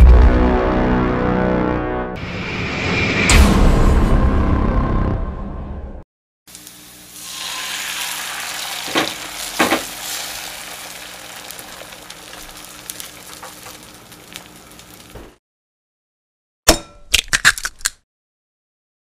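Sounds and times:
eggs sizzling in a pan: 0:06.5 - 0:15.4.

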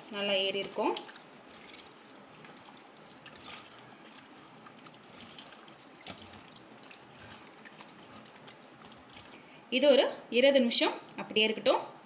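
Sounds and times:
wet squishing of marinade: 0:00.0 - 0:09.4.

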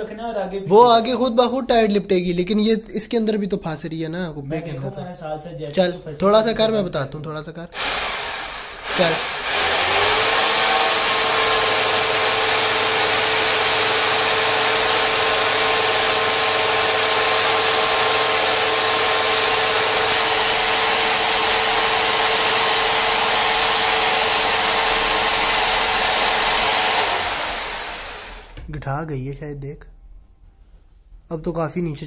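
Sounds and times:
electric drill motor whine: 0:07.8 - 0:28.6.

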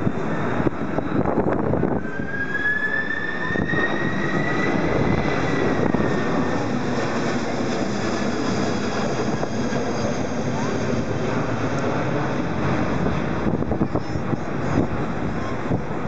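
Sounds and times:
jet airliner flying overhead: 0:00.0 - 0:16.0.

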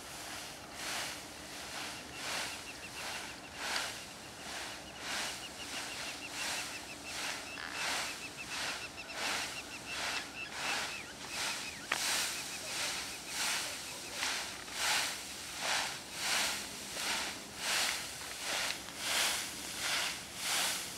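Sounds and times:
dry wheat stalks rustling: 0:00.0 - 0:20.9
bird chirping: 0:01.8 - 0:14.2.

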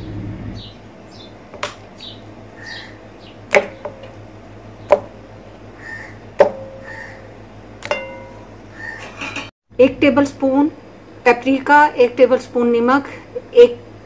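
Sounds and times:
bowl ringing: 0:06.5 - 0:06.9, 0:07.8 - 0:08.6
drumsticks knocking into a bowl: 0:07.8 - 0:08.4.

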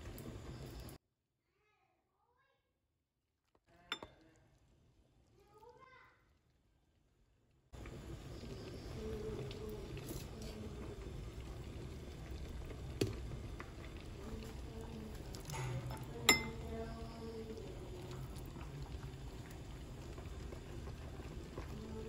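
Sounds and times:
kitchenware clinking: 0:03.9 - 0:04.2, 0:15.4 - 0:16.8.

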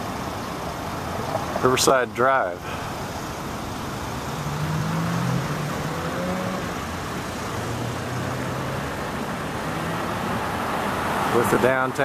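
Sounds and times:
street traffic hum: 0:00.0 - 0:12.0
vehicle passing: 0:02.6 - 0:12.0.

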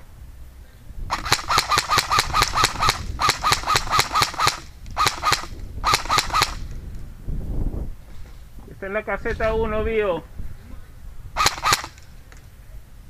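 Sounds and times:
airsoft rifle firing bursts: 0:01.1 - 0:06.6, 0:11.4 - 0:12.0.

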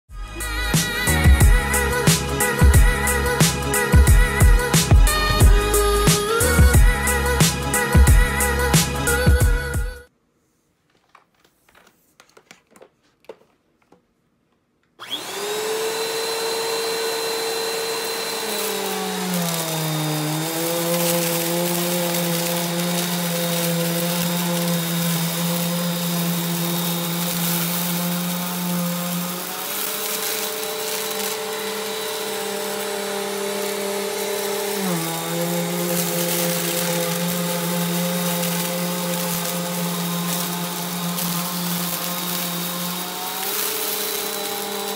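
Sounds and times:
vacuum cleaner motor whine: 0:15.0 - 0:44.9
dirt crunching in vacuum: 0:16.0 - 0:44.9.

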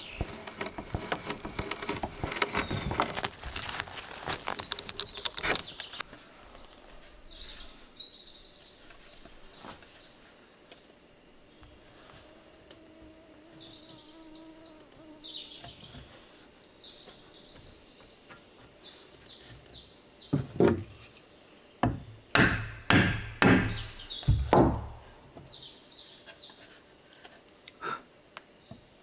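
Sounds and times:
small birds chirping: 0:00.0 - 0:00.7, 0:02.2 - 0:10.2, 0:13.4 - 0:27.1
hammer striking wooden boards: 0:21.8 - 0:25.1.

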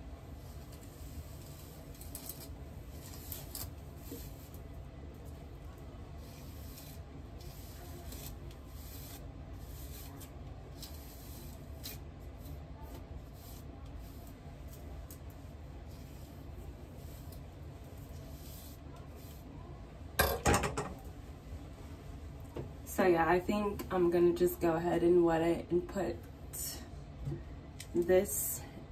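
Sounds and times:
hairbrush strokes through hair: 0:06.2 - 0:14.9, 0:15.8 - 0:19.6.

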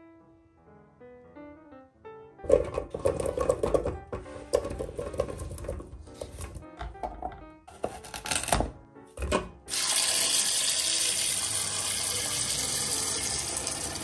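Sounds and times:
tap water running into pot: 0:02.5 - 0:06.6, 0:09.6 - 0:14.0.

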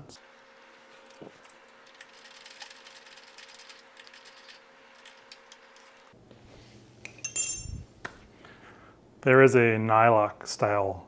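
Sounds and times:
sharp metallic clink: 0:07.1 - 0:07.9.

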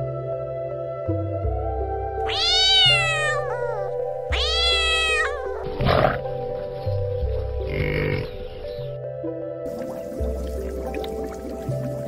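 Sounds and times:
background music: 0:00.0 - 0:12.0
cat meowing: 0:02.3 - 0:06.1.

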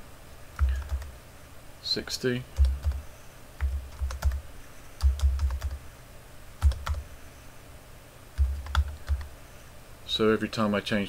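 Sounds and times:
computer keyboard typing: 0:00.6 - 0:01.1, 0:02.5 - 0:03.0, 0:03.6 - 0:04.4, 0:05.0 - 0:05.8, 0:06.6 - 0:07.1, 0:08.4 - 0:09.4.

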